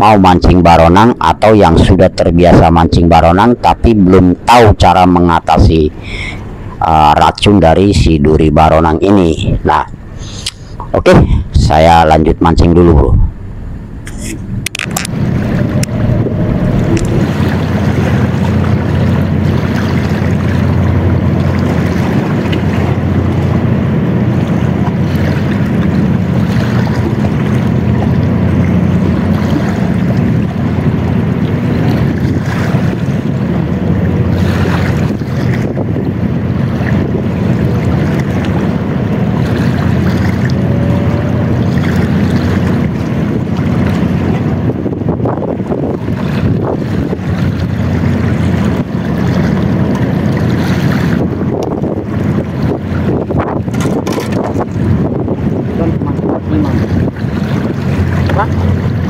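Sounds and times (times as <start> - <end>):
wind buffeting microphone: 8.9 - 59.0
waves washing against rocks: 14.8 - 40.6, 41.6 - 59.0.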